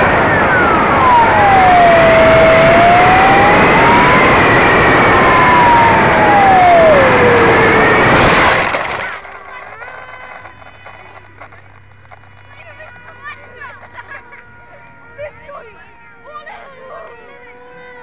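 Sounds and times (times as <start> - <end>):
wind rush: 0.0 - 12.5.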